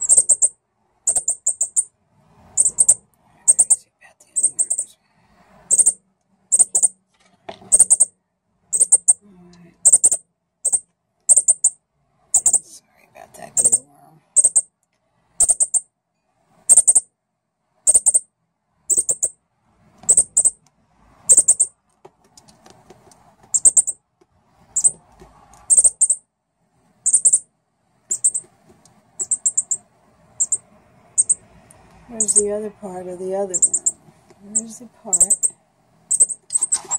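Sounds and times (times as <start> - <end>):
bird chip calls: 0.0 - 1.9, 2.6 - 4.9, 5.7 - 7.0, 7.7 - 8.1, 8.7 - 9.2, 9.8 - 12.7, 13.5 - 13.8, 14.4 - 14.6, 15.4 - 15.8, 16.7 - 17.0, 17.9 - 18.2, 18.9 - 19.3, 20.1 - 20.6, 21.3 - 21.7, 23.5 - 24.0, 24.8 - 25.0, 25.7 - 26.2, 27.1 - 27.4, 28.1 - 28.5, 29.2 - 29.8, 30.4 - 30.6, 31.2 - 31.4, 32.1 - 32.5, 33.5 - 36.9.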